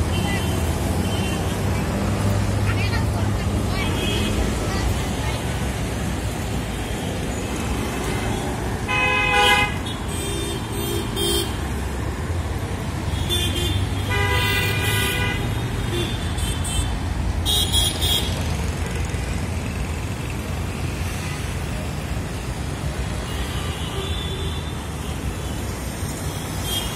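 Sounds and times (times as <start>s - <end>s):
road traffic rumble: 0.0s - 26.9s
vehicle horns honking: 8.9s - 11.6s, 13.2s - 18.4s.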